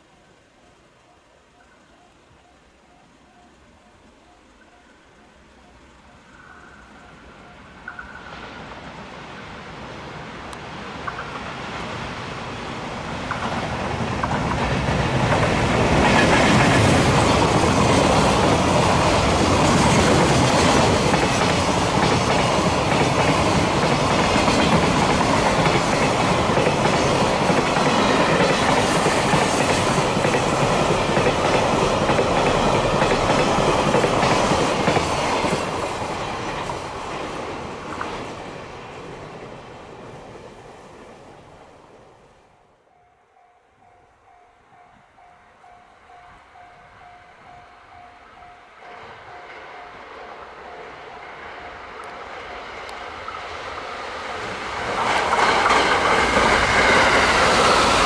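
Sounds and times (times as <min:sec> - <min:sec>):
electric locomotive passing: 0:00.0 - 0:58.0
train wheels clattering over rail joints: 0:13.1 - 0:38.4, 0:54.6 - 0:58.0.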